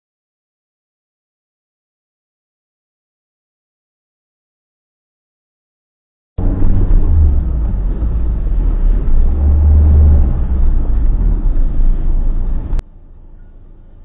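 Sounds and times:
car engine and tyre rumble: 6.4 - 14.0.

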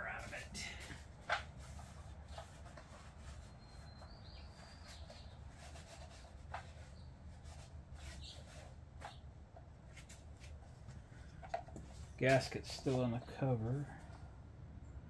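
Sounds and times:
faint high chirp: 3.4 - 5.4.

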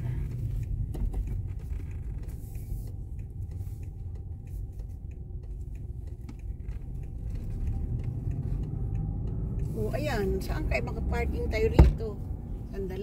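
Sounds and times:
car engine and road rumble: 0.0 - 13.0
faint light ticking: 0.3 - 11.5.

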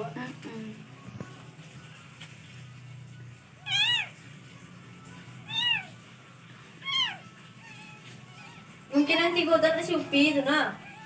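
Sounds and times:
cat mewing: 3.6 - 4.3, 5.1 - 6.1, 6.7 - 8.9, 10.7 - 11.0.

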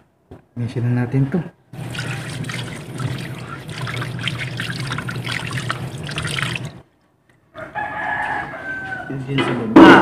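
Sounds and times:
hands rinsing and splashing fish: 1.8 - 6.8
tap water running into sink: 1.8 - 6.8.

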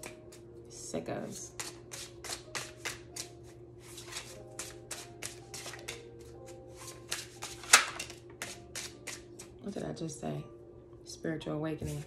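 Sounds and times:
cards being shuffled: 1.6 - 9.5.

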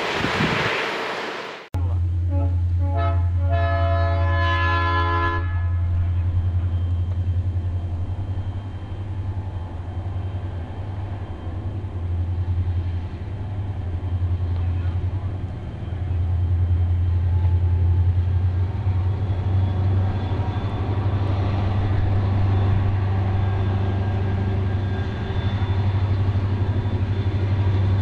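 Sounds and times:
train rumbling: 0.0 - 28.0
train horn blasts: 2.2 - 6.4.

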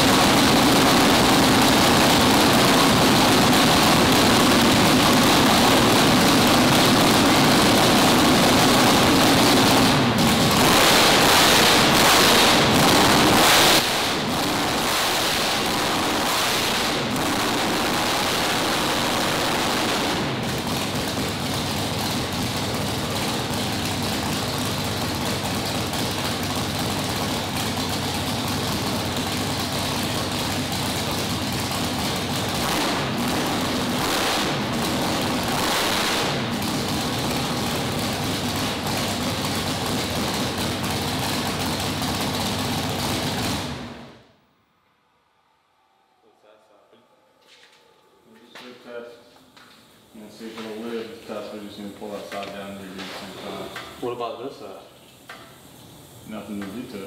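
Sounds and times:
drag-race engine running: 0.0 - 44.2.

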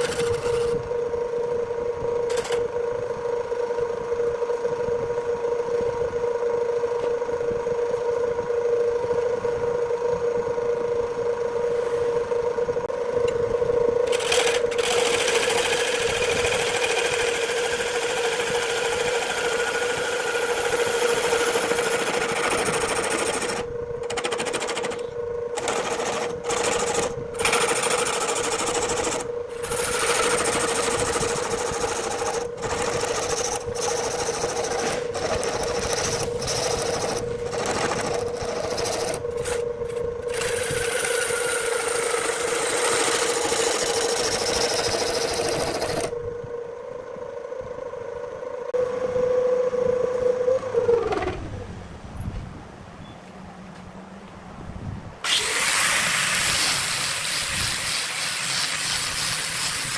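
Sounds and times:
tool scraping spinning wood: 0.0 - 0.8, 14.1 - 46.1, 55.2 - 59.9
lathe motor humming: 0.0 - 1.0, 14.0 - 46.1.

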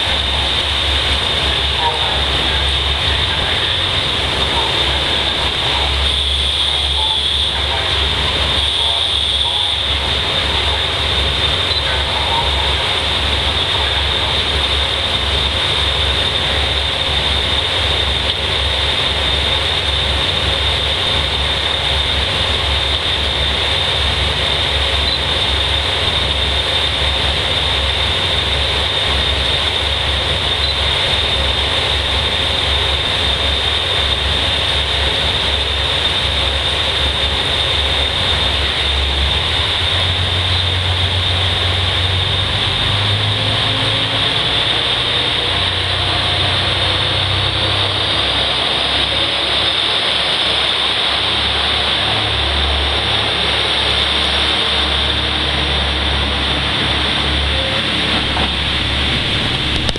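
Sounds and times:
diesel railcar engines idling: 0.0 - 59.9.

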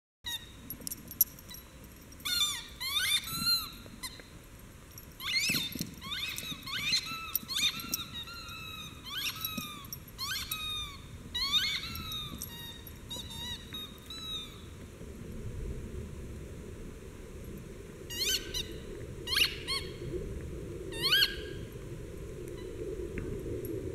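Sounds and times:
squeaky toy squeaking: 0.3 - 0.6, 2.2 - 4.2, 5.2 - 14.6.

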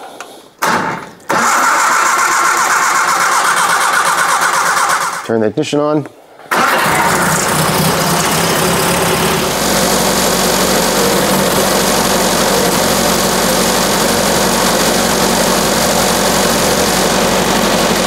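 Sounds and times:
car engine fast idle: 6.5 - 18.0.

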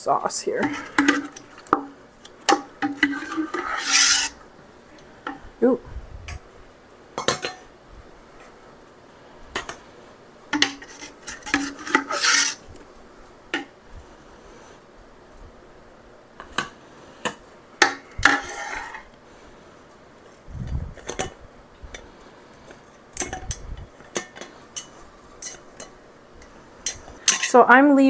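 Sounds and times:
metal ladle scraping a pot: 0.6 - 1.8, 2.5 - 4.4, 10.6 - 12.7, 18.2 - 19.1, 24.2 - 27.6
utensils clinking on a pot: 0.6 - 4.4, 7.2 - 7.7, 10.5 - 12.6, 23.2 - 27.6.

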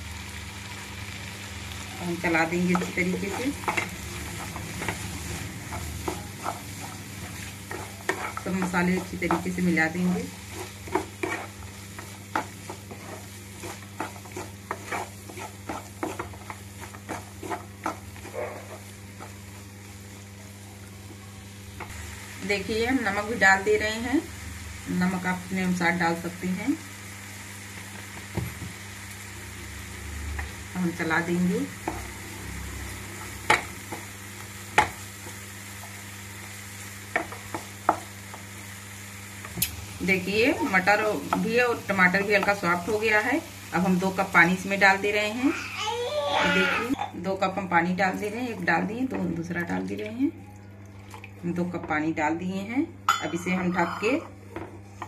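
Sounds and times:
food sizzling: 0.0 - 55.0
steady low hum: 1.8 - 27.1
spatula scraping a pan: 2.7 - 19.7.

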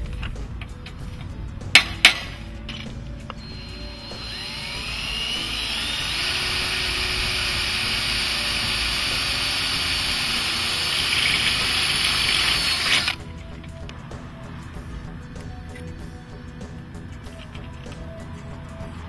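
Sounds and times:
cordless drill boring into metal: 3.4 - 13.2.

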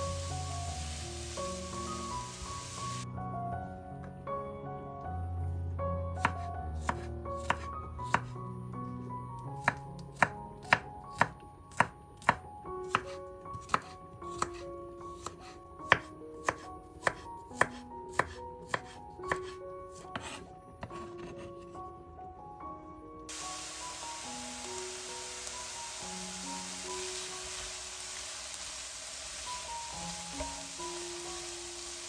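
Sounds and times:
soft background music: 0.0 - 32.0
knife chopping on cutting board: 9.6 - 14.6, 15.2 - 21.5.

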